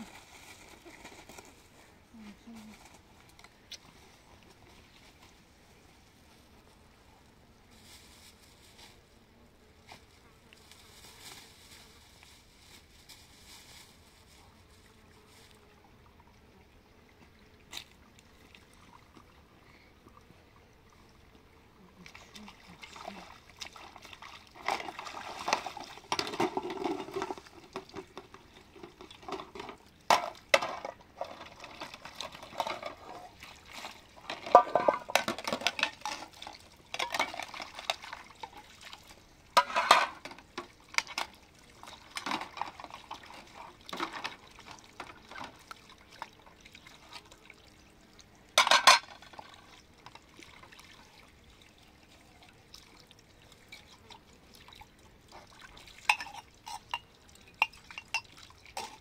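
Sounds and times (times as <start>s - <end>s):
water splashing and sloshing: 0.0s - 6.5s, 10.0s - 59.0s
metal dishes clinking: 39.6s - 40.2s, 48.6s - 49.1s, 56.1s - 59.0s.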